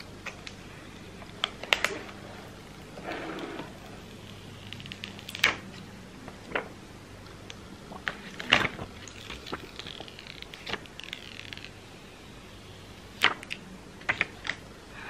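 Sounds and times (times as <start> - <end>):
plastic film crinkling: 0.2 - 5.8, 8.0 - 12.2.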